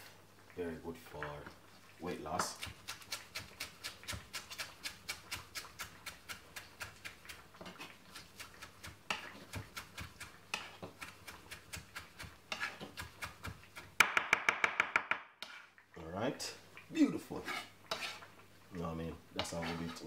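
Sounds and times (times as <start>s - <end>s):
knife chopping on cutting board: 2.4s - 15.3s.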